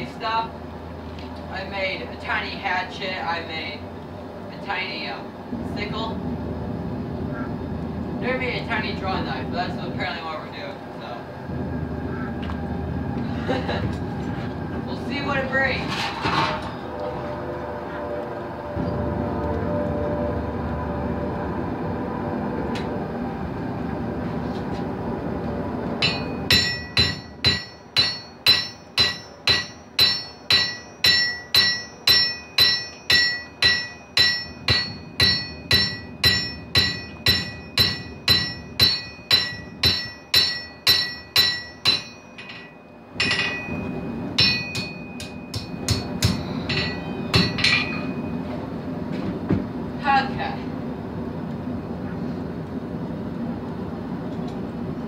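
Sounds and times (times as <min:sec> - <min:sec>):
hammer ringing on anvil: 0:26.0 - 0:48.4.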